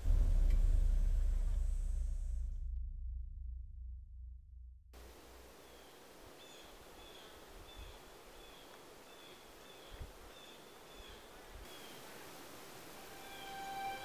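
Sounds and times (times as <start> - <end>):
soft low thump: 0.0 - 4.9
soft steady hiss: 5.0 - 14.0.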